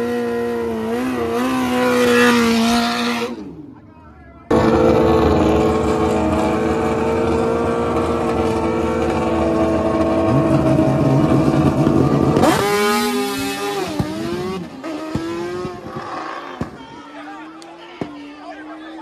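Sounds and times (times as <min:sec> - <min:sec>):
racing motorcycle engine revving: 0:00.0 - 0:03.8, 0:04.5 - 0:16.8.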